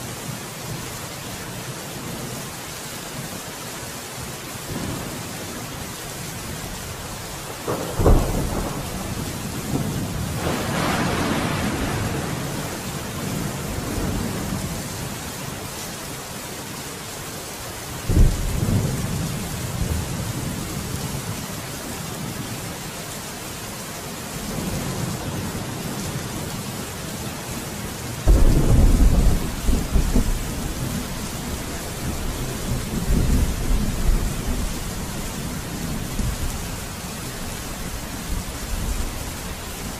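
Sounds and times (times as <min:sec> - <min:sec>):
steady rain: 0:00.0 - 0:39.9
rolling thunder: 0:07.5 - 0:12.7, 0:28.2 - 0:36.5.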